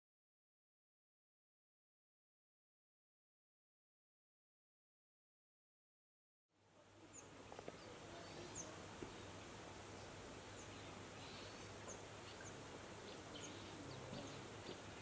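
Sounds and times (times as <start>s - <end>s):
steady hiss: 6.6s - 15.0s.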